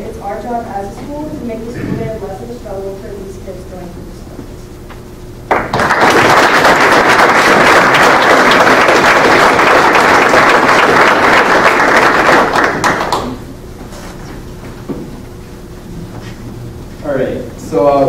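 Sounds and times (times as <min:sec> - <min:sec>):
audience applauding: 0:05.5 - 0:13.4.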